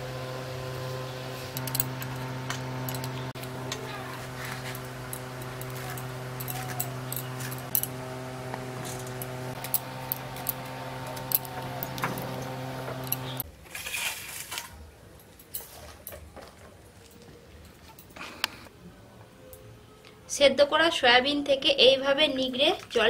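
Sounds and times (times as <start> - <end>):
steady hum: 0.0 - 13.4.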